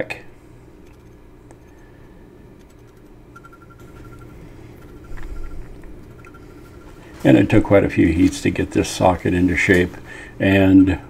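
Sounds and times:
low hum: 0.0 - 11.0
rapidly repeating high tone: 2.6 - 8.2.

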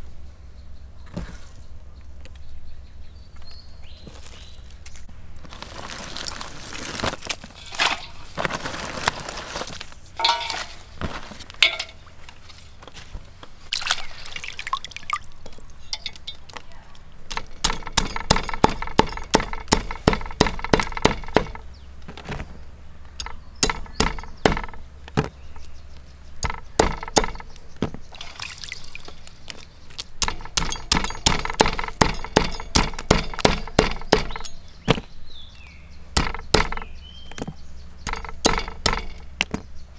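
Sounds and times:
clinks: 10.2 - 10.8, 11.6 - 12.1, 15.8 - 16.6
water splashing and pouring: 13.7 - 15.4, 28.1 - 29.3.

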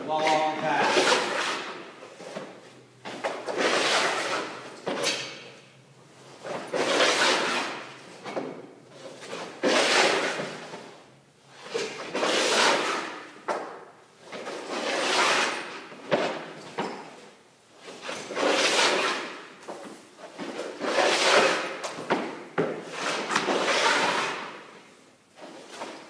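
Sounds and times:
skate blades scraping ice: 0.1 - 2.6, 3.3 - 5.0, 6.6 - 8.1, 9.2 - 11.0, 11.6 - 13.7, 14.4 - 16.5, 17.9 - 26.0.

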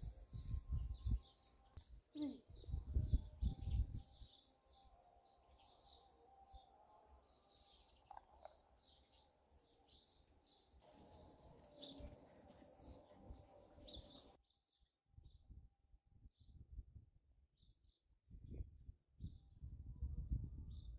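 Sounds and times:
small birds chirping: 0.0 - 14.4.

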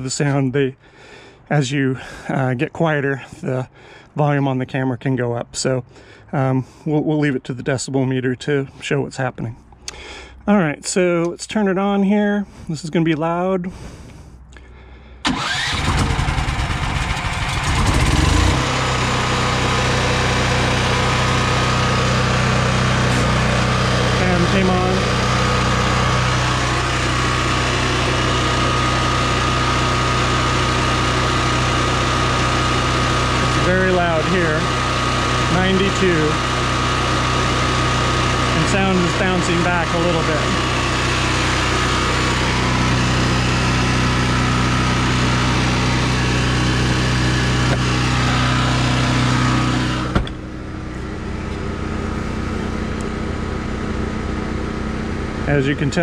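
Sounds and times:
generator engine running: 0.0 - 4.2, 13.7 - 56.0
high whine: 15.9 - 36.7, 38.5 - 53.2.

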